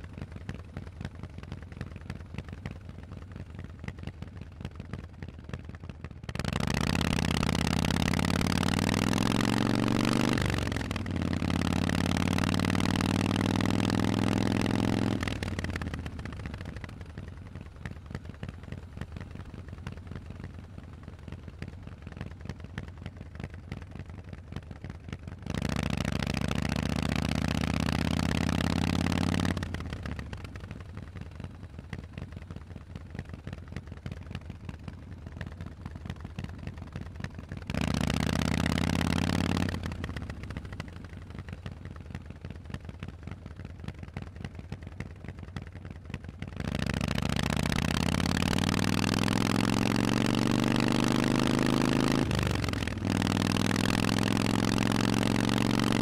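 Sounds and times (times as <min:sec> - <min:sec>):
motorcycle engine rumble: 0:00.0 - 0:56.0
motorcycle engine revving: 0:06.3 - 0:21.0, 0:25.3 - 0:32.3, 0:36.1 - 0:42.2, 0:46.4 - 0:56.0.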